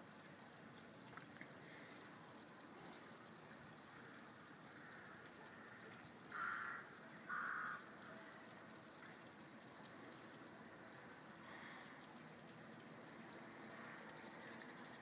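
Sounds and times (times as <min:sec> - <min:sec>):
faint steady hiss: 0:00.0 - 0:15.0
crow cawing: 0:04.8 - 0:07.8.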